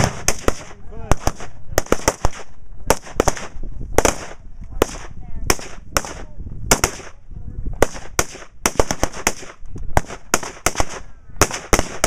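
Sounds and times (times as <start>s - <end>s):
explosive target booms: 0.0s - 7.2s
rapid rifle fire: 0.0s - 7.2s, 7.8s - 12.0s.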